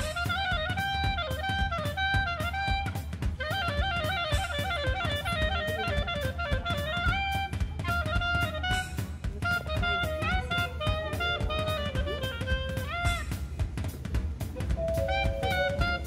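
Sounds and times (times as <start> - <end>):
drum kit beat: 0.0 - 16.0
plucked guitar-like melody: 14.6 - 16.0.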